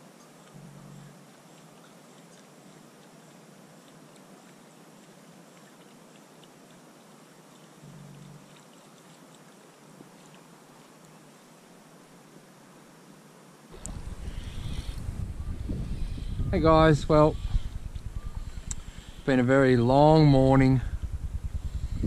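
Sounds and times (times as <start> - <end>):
faint outdoor hiss: 0.0 - 22.0
low thumps: 13.8 - 22.0
light ticks: 17.6 - 18.9.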